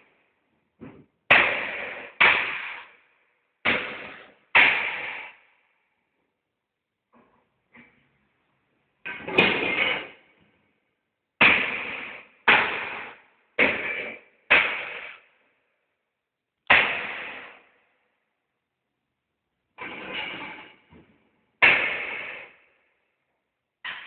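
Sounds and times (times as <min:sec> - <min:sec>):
loud echoing blows on boards: 0:01.3 - 0:03.0, 0:03.6 - 0:05.4, 0:11.4 - 0:15.2, 0:16.7 - 0:17.7, 0:21.6 - 0:22.6.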